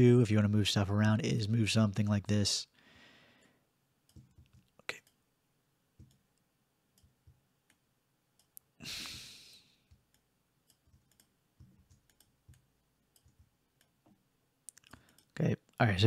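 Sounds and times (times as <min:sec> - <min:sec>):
breathy exhale: 0:02.8 - 0:03.6, 0:08.8 - 0:09.8
computer mouse clicks: 0:04.1 - 0:05.2, 0:06.0 - 0:07.8, 0:08.4 - 0:08.7, 0:09.9 - 0:14.0, 0:14.7 - 0:15.4.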